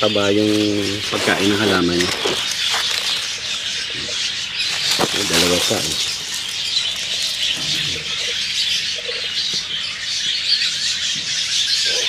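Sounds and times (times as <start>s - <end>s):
birds chirping and squawking: 0.0s - 12.0s.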